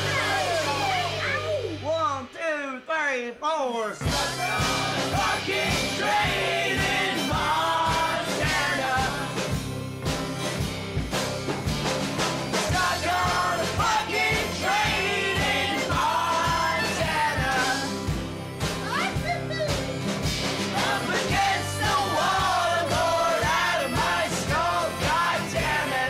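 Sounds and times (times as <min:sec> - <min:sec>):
steady drum beat: 0:00.0 - 0:02.4, 0:04.0 - 0:26.0
person singing rock song: 0:04.0 - 0:09.8, 0:12.5 - 0:18.3, 0:20.6 - 0:26.0.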